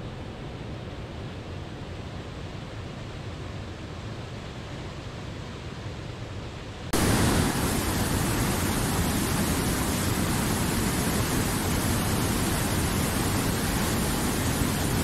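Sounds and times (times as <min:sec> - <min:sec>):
stream rushing over stones: 0:07.0 - 0:15.0.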